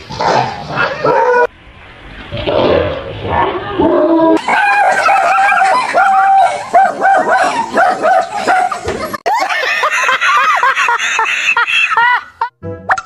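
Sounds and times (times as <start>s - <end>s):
dog barking and yelping: 0.2s - 1.5s, 4.4s - 9.0s.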